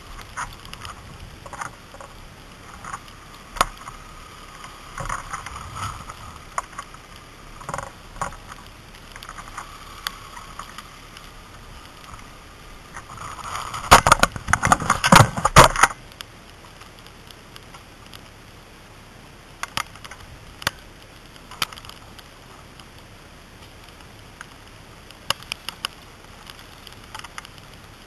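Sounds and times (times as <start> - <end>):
scraping against microphone: 0.0 - 15.9
crunching of icy snow: 0.0 - 18.4.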